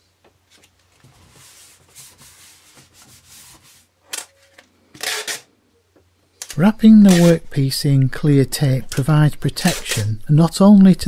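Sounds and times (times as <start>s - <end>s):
hands scuffing paper on board: 0.6s - 3.9s.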